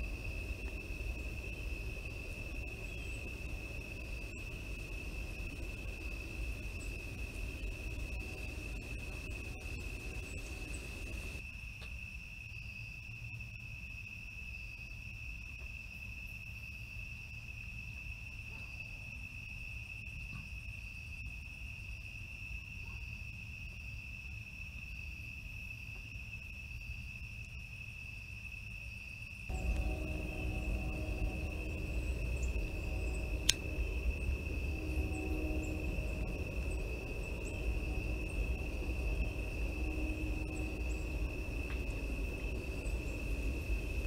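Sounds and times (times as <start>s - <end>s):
low background rumble: 0.0s - 11.4s, 29.5s - 44.0s
crickets trilling: 0.0s - 44.0s.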